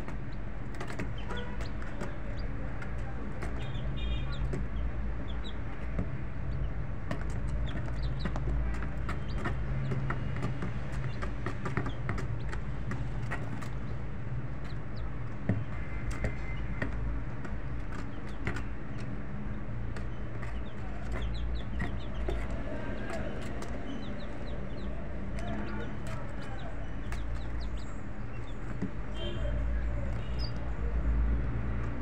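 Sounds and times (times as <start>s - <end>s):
small clicks and chirps: 19.8s - 28.9s.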